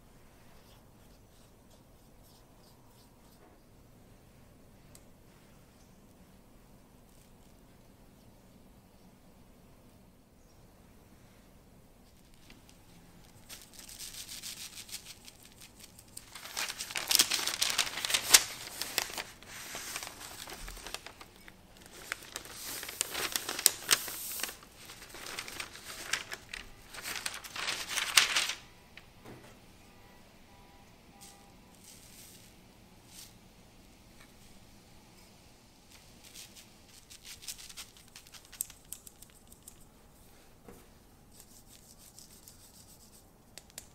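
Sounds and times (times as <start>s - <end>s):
baking paper crinkling: 12.0s - 28.7s, 35.9s - 39.9s.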